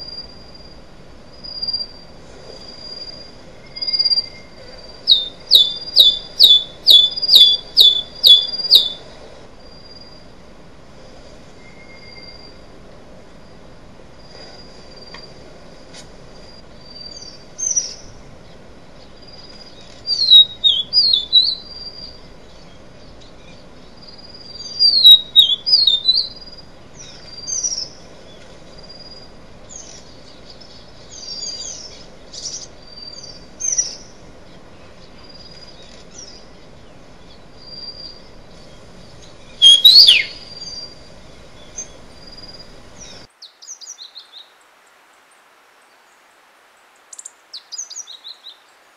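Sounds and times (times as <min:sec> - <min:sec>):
songbirds chirping and singing: 0:05.1 - 0:09.0, 0:16.8 - 0:28.5, 0:29.7 - 0:44.5.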